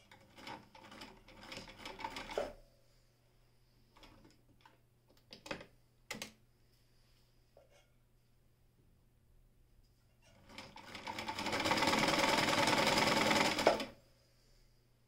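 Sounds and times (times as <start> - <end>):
sewing machine stitching: 0.0 - 2.5, 10.3 - 14.0.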